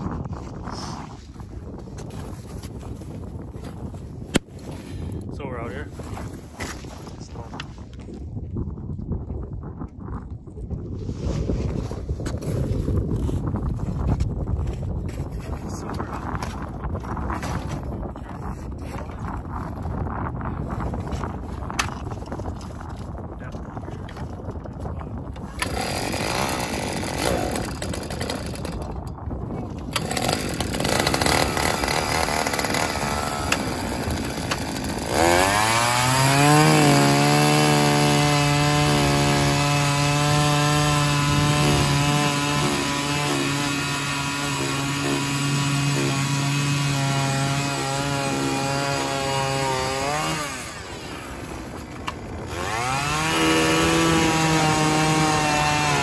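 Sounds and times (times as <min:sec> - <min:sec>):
small two-stroke engine revving: 0:25.6 - 0:28.8, 0:29.9 - 0:51.8, 0:52.4 - 0:56.0.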